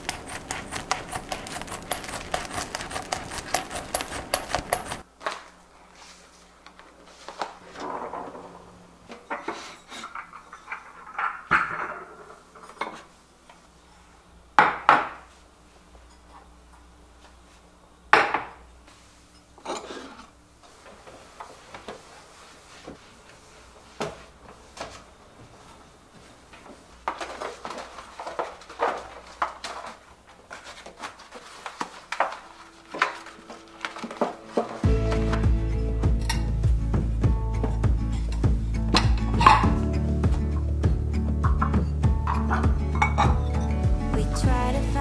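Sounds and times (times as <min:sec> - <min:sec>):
bowls scraping: 0:00.0 - 0:05.0, 0:38.0 - 0:40.7, 0:41.4 - 0:43.8
ceramic bowls clinking: 0:39.0 - 0:39.7, 0:41.4 - 0:43.7.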